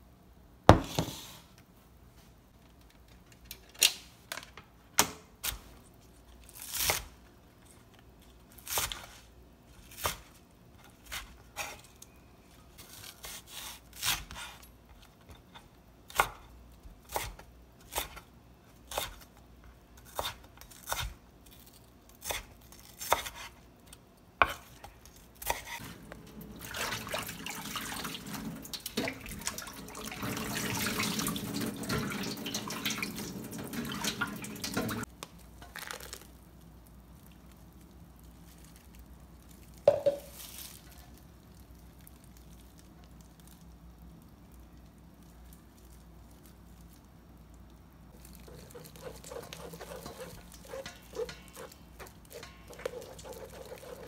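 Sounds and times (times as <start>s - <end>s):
knife chopping on wooden board: 48.5s - 54.0s.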